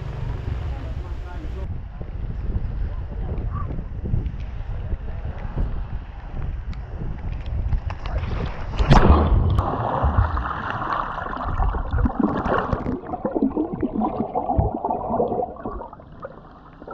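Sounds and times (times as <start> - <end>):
wind on camera microphone: 1.5 - 16.2
loud splash into water: 8.8 - 16.0
muffled underwater bubbling: 8.9 - 16.9.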